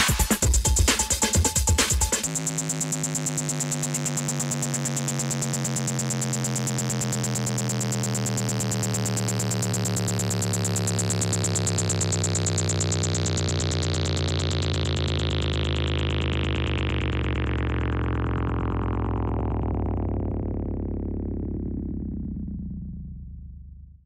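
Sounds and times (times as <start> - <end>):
synthesizer drone: 0.0 - 24.0.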